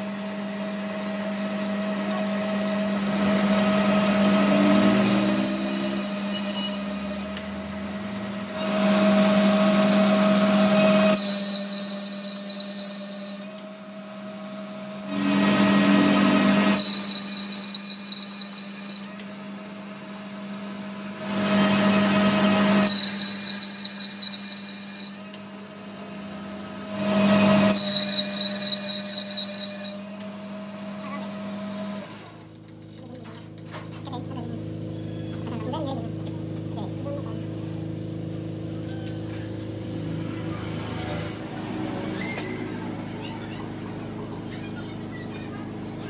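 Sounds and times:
lathe spindle humming: 0:02.5 - 0:19.4, 0:21.4 - 0:25.4, 0:26.8 - 0:30.3
lathe cutting metal: 0:02.8 - 0:07.6, 0:08.2 - 0:13.6, 0:15.0 - 0:19.2, 0:21.3 - 0:25.3, 0:26.9 - 0:30.2
high-pitched whine: 0:03.0 - 0:09.3, 0:15.0 - 0:19.3, 0:22.8 - 0:25.2.

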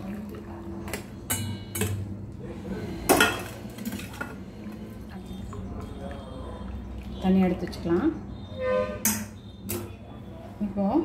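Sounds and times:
metal pot clinking on strainer: 0:00.9 - 0:02.0, 0:09.0 - 0:09.9.

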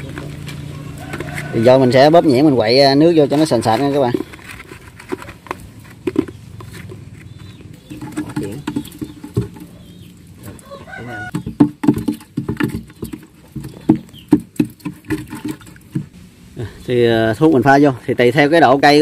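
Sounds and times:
chickens clucking: 0:00.0 - 0:16.9
rooster crowing: 0:00.6 - 0:02.7, 0:10.5 - 0:11.4.

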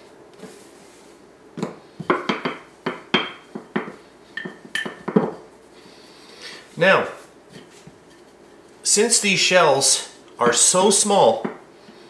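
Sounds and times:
rolling pin knocking on tile: 0:01.6 - 0:05.4.

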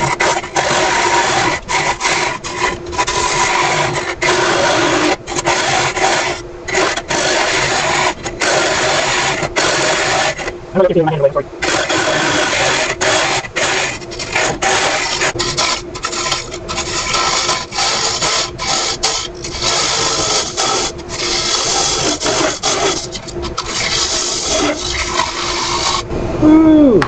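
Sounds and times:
scraper hissing on spinning wood: 0:00.0 - 0:10.6, 0:11.6 - 0:26.1.

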